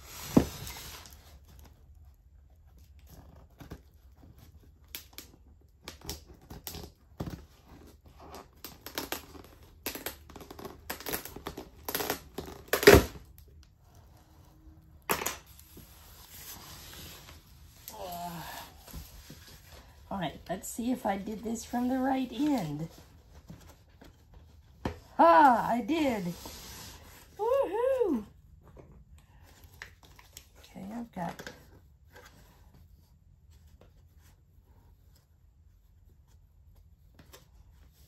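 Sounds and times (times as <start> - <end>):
packing tape peeling off cardboard: 3.0 - 13.5.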